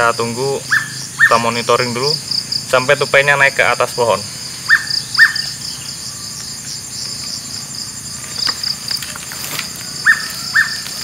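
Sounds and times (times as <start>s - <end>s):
insects trilling: 0.0s - 11.0s
footsteps on dry palm fronds: 8.2s - 11.0s.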